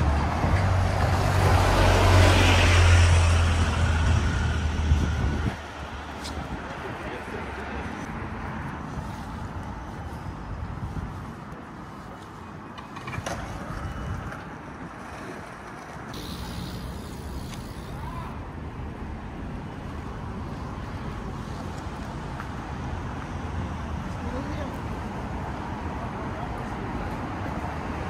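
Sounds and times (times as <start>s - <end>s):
rumble of passing traffic: 0.0s - 28.0s
hissing passing vehicle: 16.2s - 18.3s.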